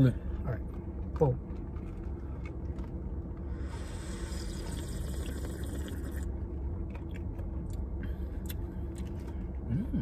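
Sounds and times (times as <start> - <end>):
low car hum: 0.0 - 10.0
person sipping from cup: 3.6 - 6.3.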